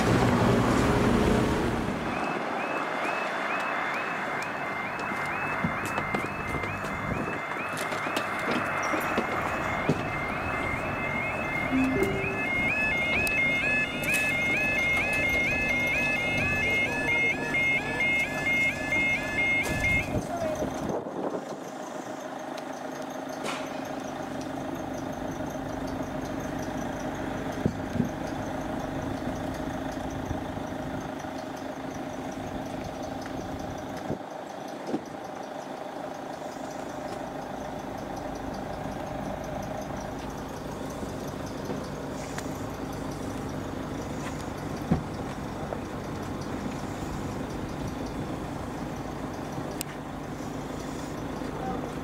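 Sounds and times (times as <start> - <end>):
vehicle engine humming: 0.0 - 52.0
steady pitched tones: 4.4 - 19.6.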